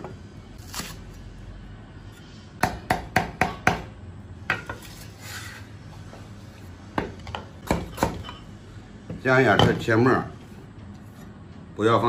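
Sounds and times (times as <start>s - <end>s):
cleaver chopping on wooden block: 2.6s - 3.9s.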